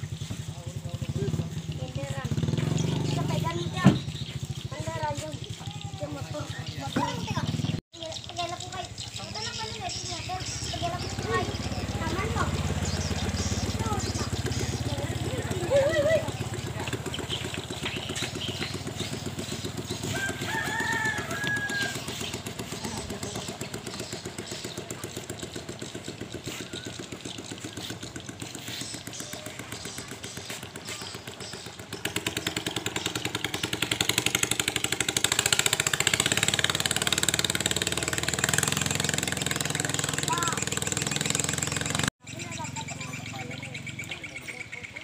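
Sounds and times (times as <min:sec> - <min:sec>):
boat engine running at speed: 0:10.4 - 0:44.1
rooster crowing: 0:20.0 - 0:22.3.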